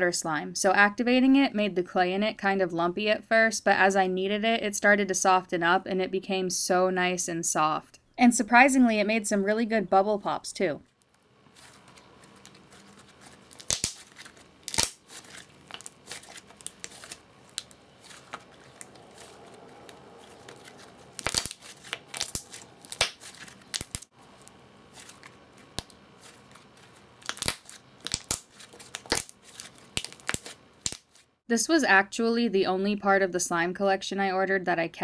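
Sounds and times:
slime popping and crackling: 12.8s - 24.1s, 27.2s - 31.2s.

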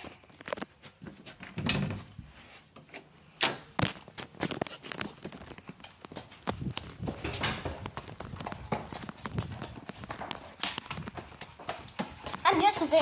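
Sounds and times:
footsteps: 3.6s - 13.0s.

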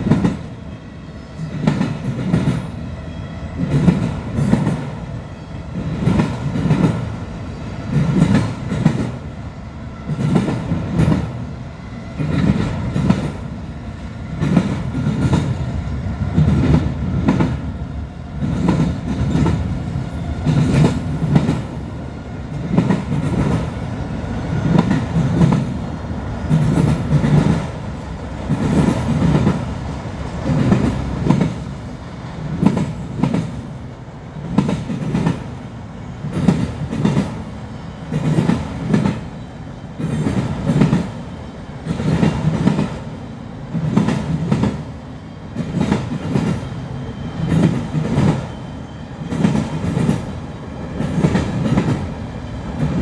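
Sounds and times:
train rumble: 0.0s - 53.0s
train wheels clacking: 1.4s - 2.8s, 3.6s - 5.0s, 5.8s - 7.1s, 7.9s - 9.2s, 10.0s - 11.4s, 12.1s - 13.5s, 14.3s - 17.7s, 18.4s - 21.8s, 22.5s - 23.8s, 24.6s - 25.8s, 26.4s - 27.8s, 28.4s - 31.7s, 32.5s - 33.6s, 34.5s - 35.5s, 36.3s - 39.4s, 40.0s - 43.0s, 43.7s - 44.8s, 45.6s - 46.8s, 47.4s - 50.4s, 51.0s - 52.2s.

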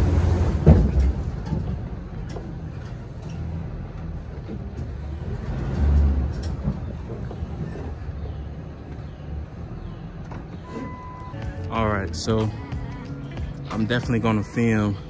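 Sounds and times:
truck engine rumbling: 0.0s - 15.0s.

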